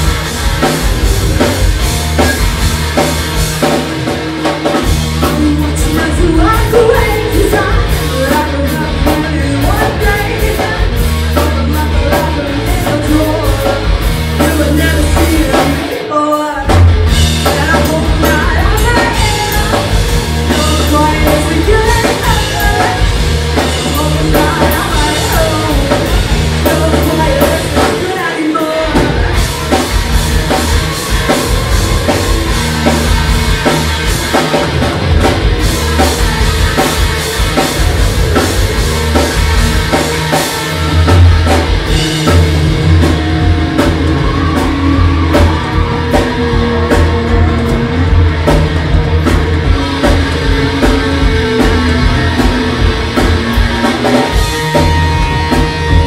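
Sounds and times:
drum kit: 0:00.0 - 0:56.0
electric bass: 0:00.0 - 0:56.0
electric guitar: 0:00.0 - 0:56.0
person singing: 0:05.1 - 0:29.8.

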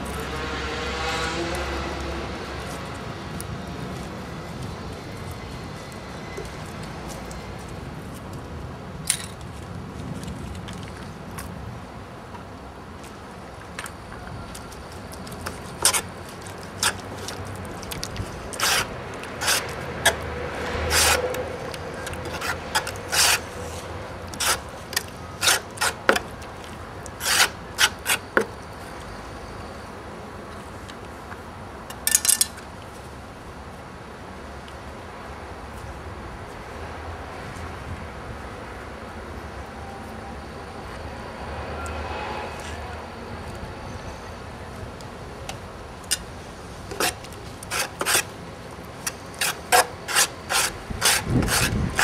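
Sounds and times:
short scraping strokes: 0:18.5 - 0:24.7.

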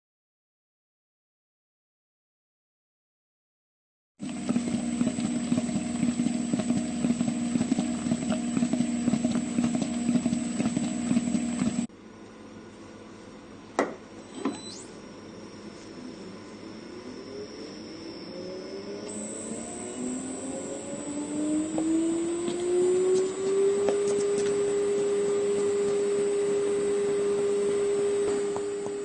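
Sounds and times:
stirrer machine humming: 0:04.2 - 0:12.0, 0:14.6 - 0:29.0
rising machine whine: 0:14.4 - 0:29.0.

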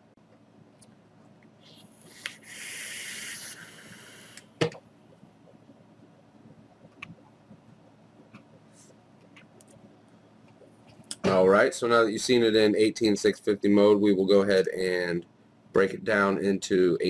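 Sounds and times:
air hissing through vape: 0:02.1 - 0:04.5.

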